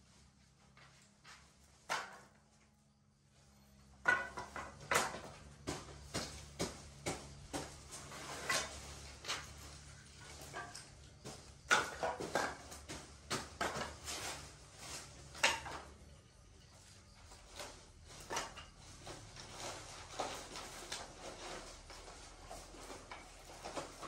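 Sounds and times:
hard objects knocking and clattering: 3.8 - 16.1.

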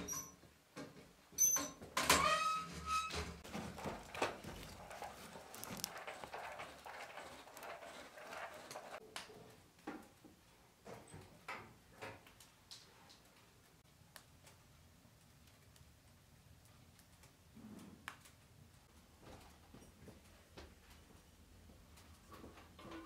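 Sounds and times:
scraping and shuffling: 2.6 - 11.4.

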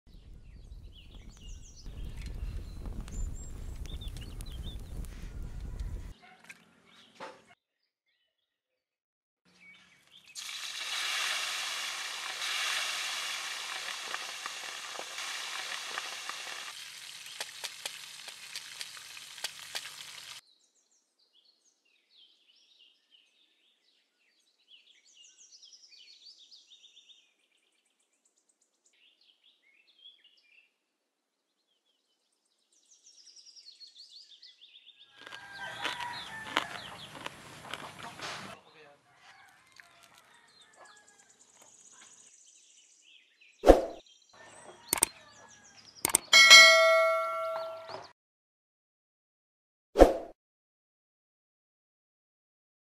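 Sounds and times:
hot oil sizzling and crackling: 1.2 - 6.1, 10.3 - 20.4.

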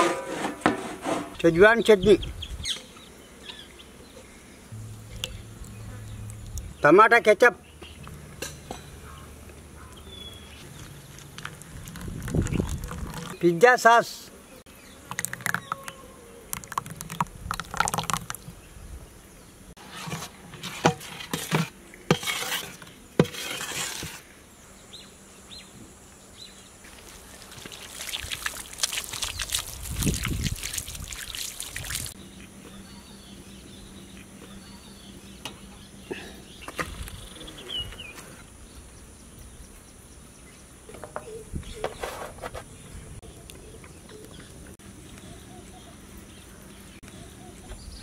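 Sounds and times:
water splashing onto ground: 16.5 - 18.5, 26.9 - 32.2.

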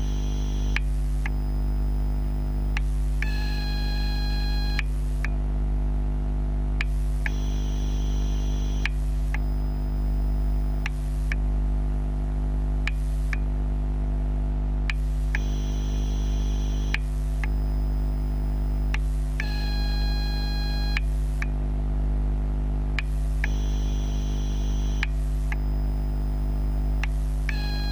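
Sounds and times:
buzzing whine changing tones: 0.0 - 4.9, 7.2 - 11.4, 15.2 - 21.1, 23.4 - 27.9
electrical hum: 0.0 - 5.4, 6.8 - 21.7, 22.9 - 27.9
faint click: 10.8 - 11.4, 12.8 - 13.5, 16.8 - 17.7, 24.9 - 25.8.

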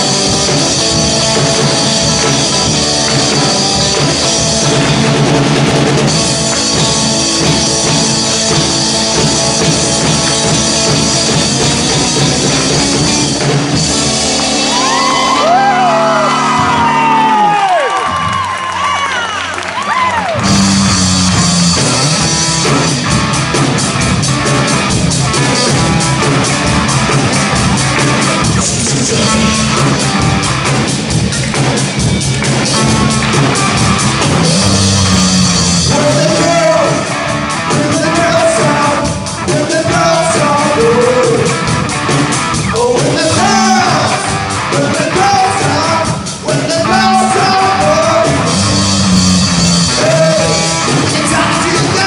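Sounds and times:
drums: 0.0 - 52.0
electric guitar: 0.0 - 52.0
live rock band playing: 0.0 - 52.0
audience whoops: 14.5 - 20.7
man singing: 28.6 - 30.0, 34.5 - 41.7, 42.6 - 49.1, 49.8 - 52.0.

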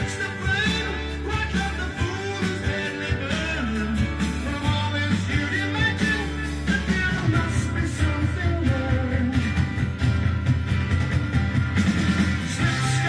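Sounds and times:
rock and roll music with singing: 0.0 - 13.0.

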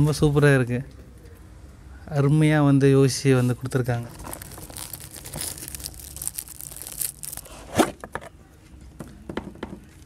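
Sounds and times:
gift-wrap paper tearing and crumpling: 4.0 - 7.8.

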